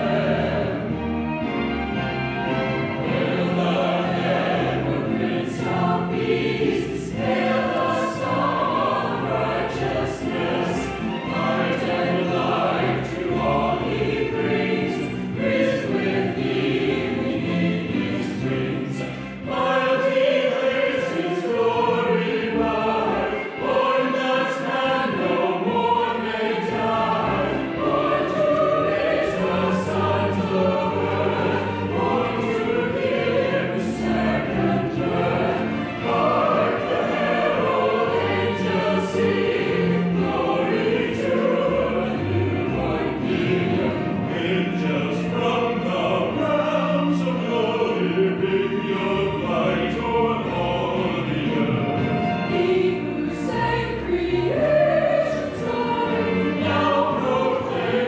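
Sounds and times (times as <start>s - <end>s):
choir singing a hymn: 0.0s - 58.0s.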